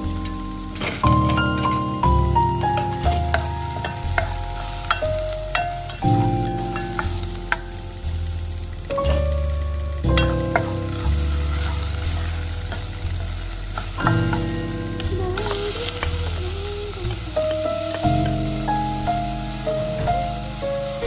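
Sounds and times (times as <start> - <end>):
background music with sustained notes: 0.0 - 21.0
garlic sizzling in oil: 0.0 - 21.0.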